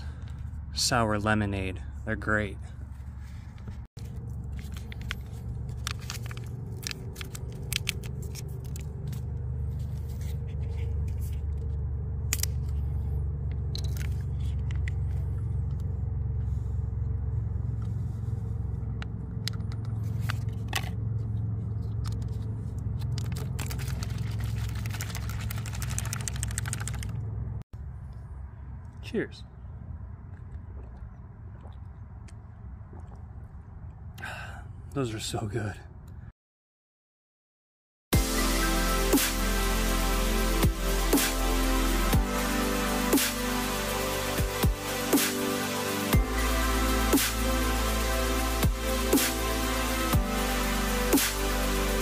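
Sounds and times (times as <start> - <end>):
low rumble: 1.8 - 26.2
packet crinkling and tearing: 4.0 - 9.2, 23.0 - 27.1
plastic bottle shaken: 4.0 - 9.2, 23.0 - 27.2
powder pouring into bottle: 23.6 - 27.0.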